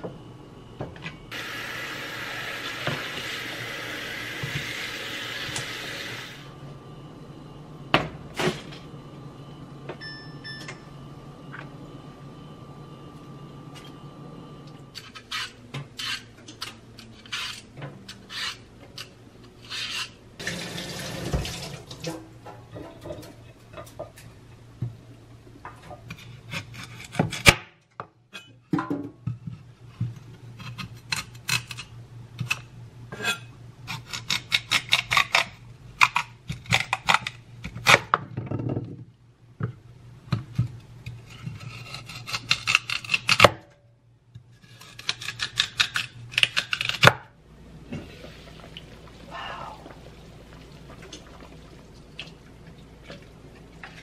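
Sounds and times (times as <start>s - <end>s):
low steady hum: 0.0s - 54.0s
peeler scraping vegetable skin: 15.0s - 20.2s, 33.9s - 38.1s, 41.1s - 43.5s, 44.6s - 47.1s
kitchen tap running: 20.4s - 22.2s.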